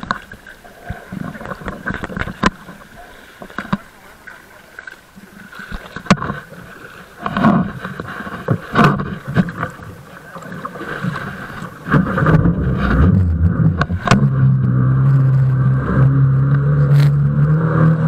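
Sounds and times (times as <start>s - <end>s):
boat motor running: 11.4s - 18.0s.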